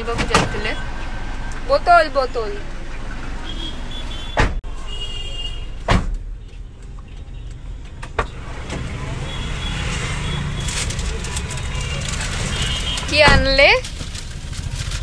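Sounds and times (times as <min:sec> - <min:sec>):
low street rumble: 0:00.0 - 0:15.0.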